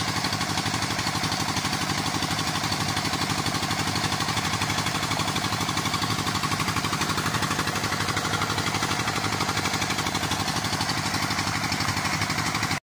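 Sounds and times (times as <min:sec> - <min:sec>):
diesel engine running: 0:00.0 - 0:12.8.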